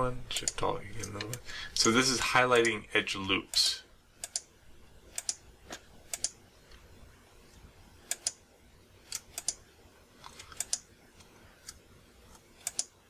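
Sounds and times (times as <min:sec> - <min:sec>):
keyboard and mouse clicking: 0:00.4 - 0:01.4, 0:04.2 - 0:04.5, 0:05.1 - 0:05.4, 0:06.1 - 0:06.4, 0:08.1 - 0:08.4, 0:09.1 - 0:09.6, 0:10.2 - 0:10.9, 0:12.6 - 0:13.0.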